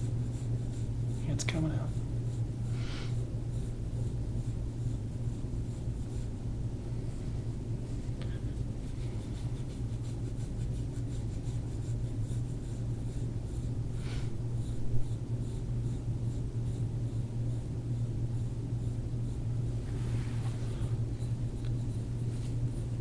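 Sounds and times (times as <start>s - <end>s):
steady low hum: 0.0s - 23.0s
fingers rubbing skin: 0.2s - 17.6s, 18.8s - 23.0s.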